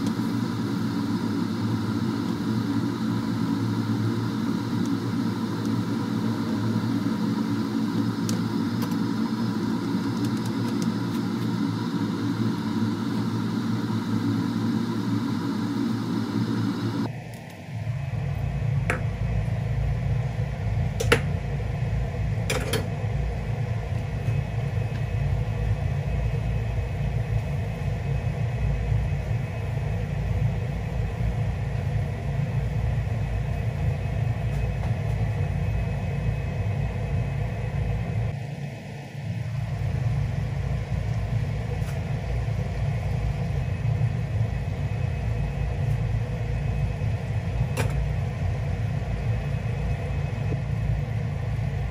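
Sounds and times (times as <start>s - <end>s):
gas hob rumbling: 0.0s - 38.4s.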